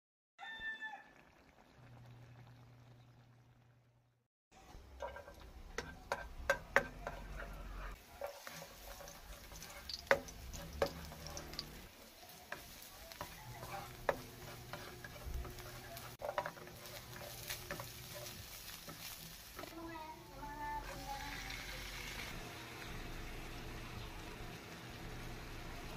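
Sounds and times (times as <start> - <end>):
onion sizzling in oil: 4.7 - 25.9
plastic spatula scraping pan: 5.0 - 11.6, 13.2 - 19.7.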